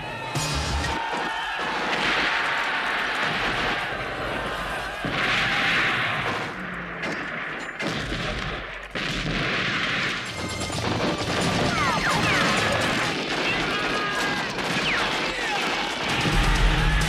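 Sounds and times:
explosions: 0.6s - 17.0s
rifle and machine-gun fire: 1.0s - 17.0s.

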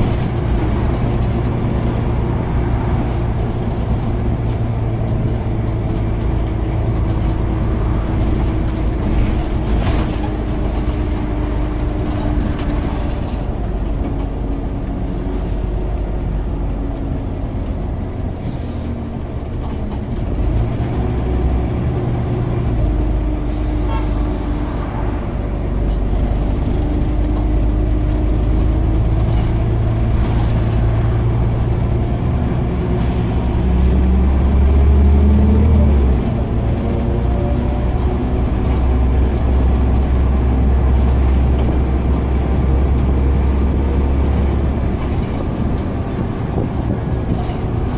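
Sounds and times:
rattles and clicks: 0.0s - 2.3s, 3.3s - 14.9s, 25.8s - 32.0s, 42.9s - 47.9s
bus diesel engine hum: 0.0s - 47.9s.

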